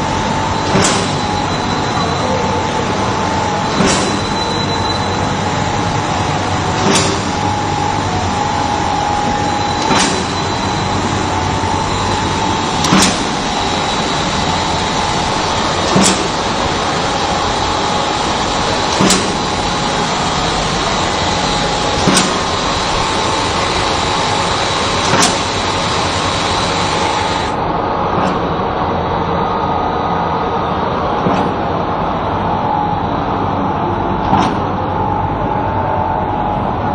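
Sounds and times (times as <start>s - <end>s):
factory machinery running: 0.0s - 36.9s
sharp mechanical clack: 0.6s - 2.2s, 3.7s - 5.3s, 6.7s - 7.5s, 9.8s - 10.9s, 12.8s - 14.0s, 15.8s - 16.7s, 18.8s - 19.6s, 21.9s - 22.6s, 24.9s - 25.6s.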